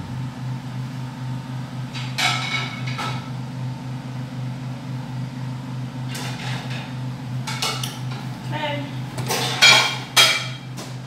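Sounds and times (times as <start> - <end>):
generator humming: 0.0 - 11.0
dishes clattering: 1.9 - 3.3, 6.1 - 8.2, 9.2 - 10.9
plates clinking: 9.2 - 10.7.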